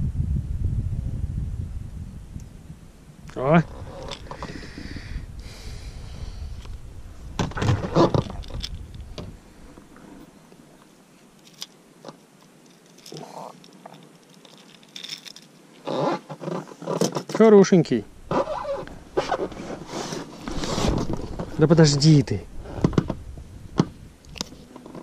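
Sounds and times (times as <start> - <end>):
low rumble: 0.0 - 10.3
fish handling rustling and clicks: 7.8 - 9.3, 10.8 - 17.5.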